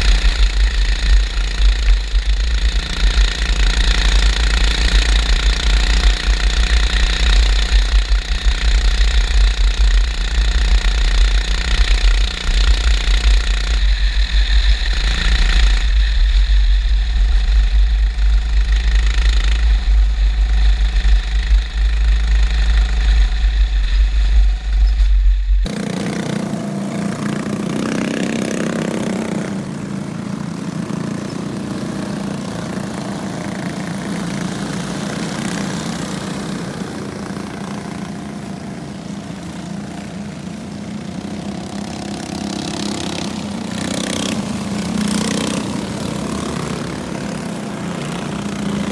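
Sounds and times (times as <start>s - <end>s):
race car engine rumbling onboard: 0.0s - 27.2s
drone of race car engines: 0.0s - 48.9s.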